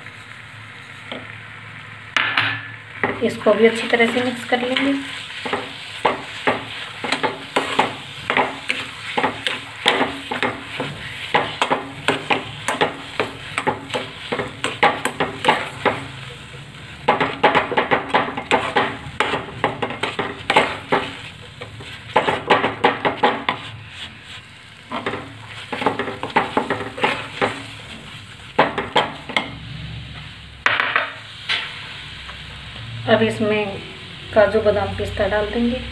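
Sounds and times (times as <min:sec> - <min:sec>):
spoon scraping metal pan: 0:03.0 - 0:16.3, 0:17.1 - 0:29.6.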